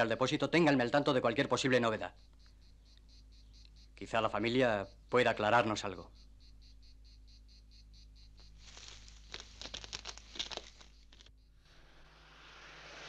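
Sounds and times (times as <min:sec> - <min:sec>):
crickets chirping: 0:00.0 - 0:13.0
crunching in dry grass: 0:08.3 - 0:11.4.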